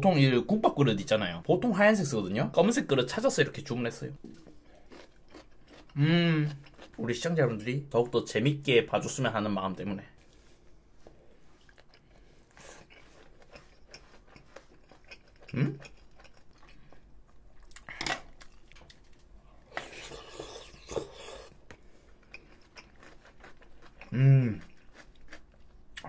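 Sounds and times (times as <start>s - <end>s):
chewing food: 4.2s - 7.0s, 10.2s - 26.0s
slurping from bowl: 19.7s - 21.6s
person humming: 24.1s - 24.6s.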